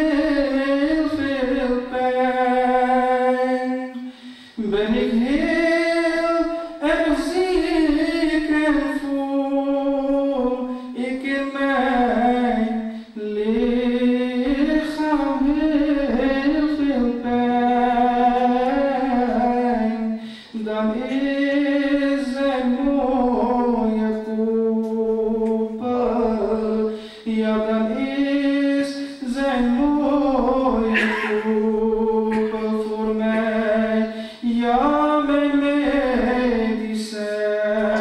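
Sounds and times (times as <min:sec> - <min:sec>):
man singing into a microphone: 0:00.0 - 0:38.0
singer breathing: 0:04.0 - 0:04.6, 0:20.2 - 0:20.6, 0:26.9 - 0:27.3, 0:34.1 - 0:34.5.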